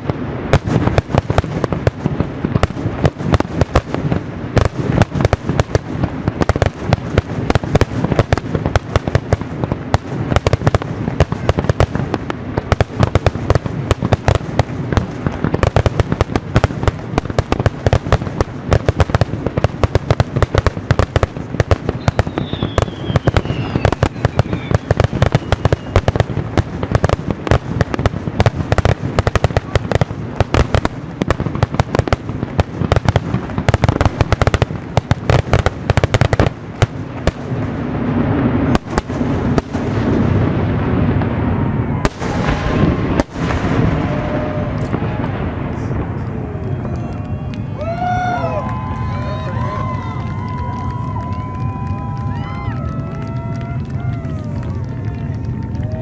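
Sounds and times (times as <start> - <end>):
fireworks bursting and crackling: 0.0 - 56.0
falling firework whistle: 21.8 - 27.1, 41.2 - 56.0.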